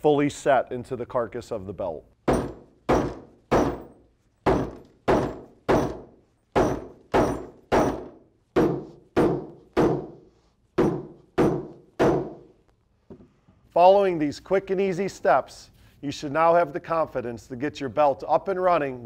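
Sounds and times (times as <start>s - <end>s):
hammer knocks on metal: 2.3s - 10.2s, 10.8s - 12.5s.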